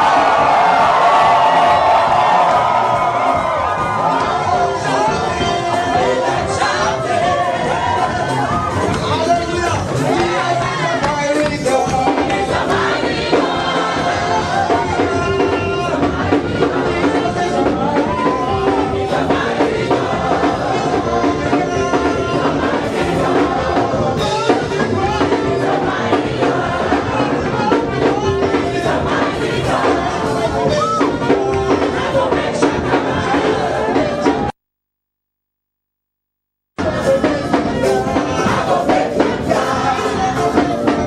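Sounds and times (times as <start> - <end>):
congregation voices: 0.0 - 34.4, 36.8 - 41.0
gospel singing over driving beat: 0.0 - 34.6, 36.8 - 41.0.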